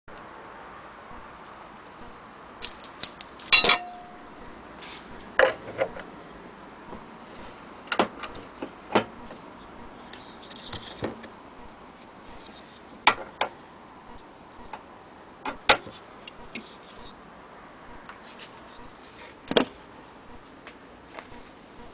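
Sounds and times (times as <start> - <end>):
metal parts clicking and clinking: 2.6 - 4.4
loud metal clank: 3.5 - 4.3.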